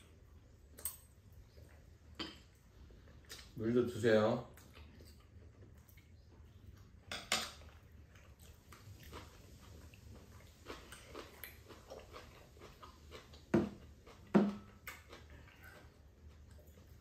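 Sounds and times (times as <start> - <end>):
chewing: 0.0 - 3.6, 4.4 - 17.0.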